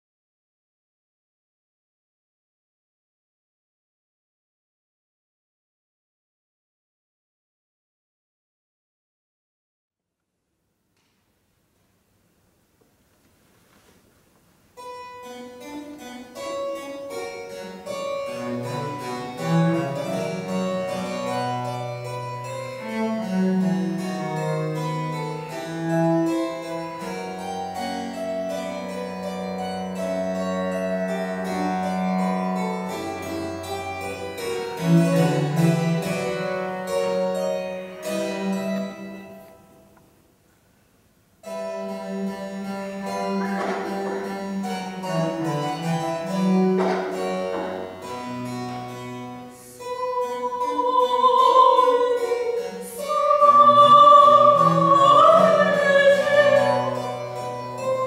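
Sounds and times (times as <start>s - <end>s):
harpsichord chords: 14.7s - 40.2s, 41.4s - 58.0s
cello bowed bass notes: 14.8s - 40.0s, 41.4s - 58.0s.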